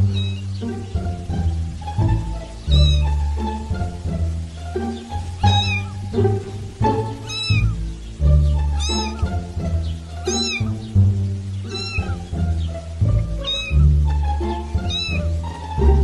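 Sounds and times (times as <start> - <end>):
background music: 0.0 - 16.0
high cat meow: 0.1 - 0.4, 2.7 - 3.1, 5.4 - 6.0, 7.2 - 7.8, 8.7 - 9.3, 10.2 - 10.7, 11.8 - 12.2, 13.4 - 13.8, 14.8 - 15.3.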